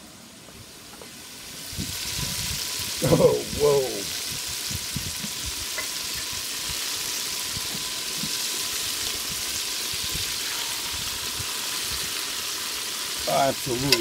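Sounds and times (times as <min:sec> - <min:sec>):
oil sizzling: 0:00.7 - 0:14.0
oil popping: 0:13.7 - 0:14.0.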